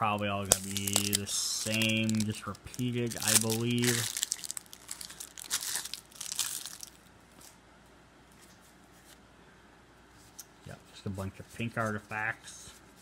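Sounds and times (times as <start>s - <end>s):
plastic wrap crinkling and tearing: 0.4s - 7.1s.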